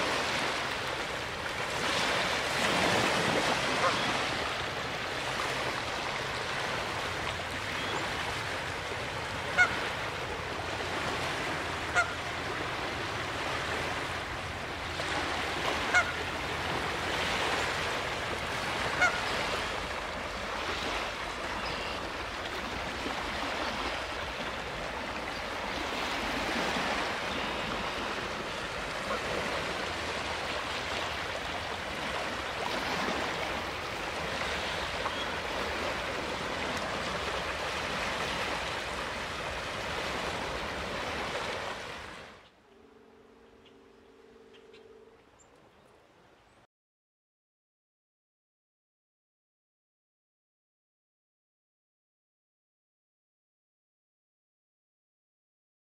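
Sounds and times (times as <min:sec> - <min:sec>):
waves washing onto pebbles: 0:00.0 - 0:07.5
goose honking: 0:09.4 - 0:09.9, 0:11.9 - 0:12.2, 0:15.8 - 0:16.2, 0:18.9 - 0:19.4.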